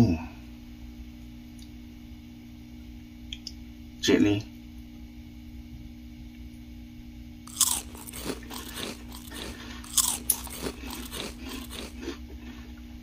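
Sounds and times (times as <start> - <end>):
person chewing crunchy cereal: 7.5 - 12.6.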